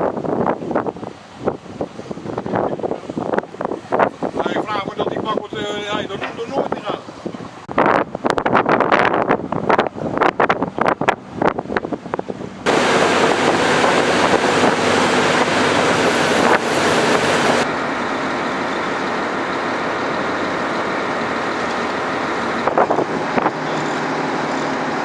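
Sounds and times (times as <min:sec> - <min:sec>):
wind buffeting microphone: 0:00.0 - 0:17.7, 0:20.4 - 0:24.5
boat wake and spray rushing: 0:00.0 - 0:25.0
boat engine drone: 0:12.2 - 0:25.0.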